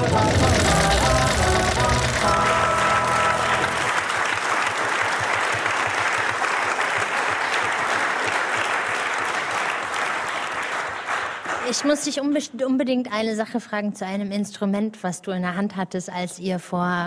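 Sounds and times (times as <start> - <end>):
music sting: 0.0 - 3.9
audience applauding: 0.0 - 12.0.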